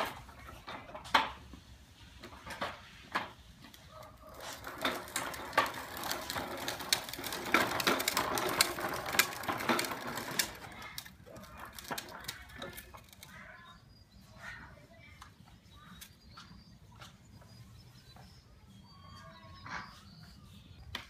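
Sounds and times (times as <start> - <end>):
plastic wheels rattling over concrete: 0.0 - 1.5, 2.1 - 16.2.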